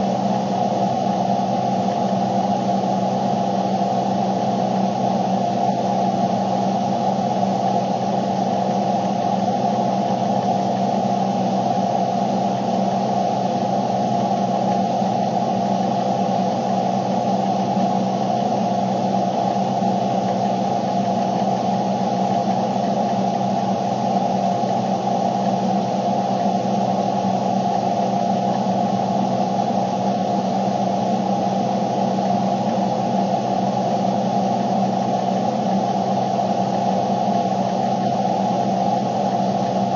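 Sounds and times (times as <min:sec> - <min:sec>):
steady multi-tone hum: 0:00.0 - 0:39.9.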